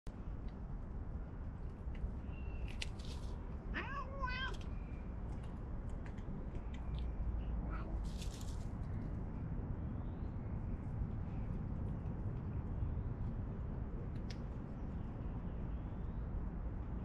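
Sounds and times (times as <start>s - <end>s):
low outdoor rumble: 0.1s - 17.0s
cat meowing: 3.7s - 4.6s, 7.6s - 8.0s.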